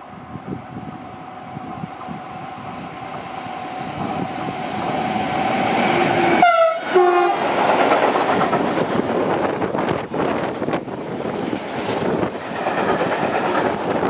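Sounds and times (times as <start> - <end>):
train horn blasts: 6.3 - 7.5.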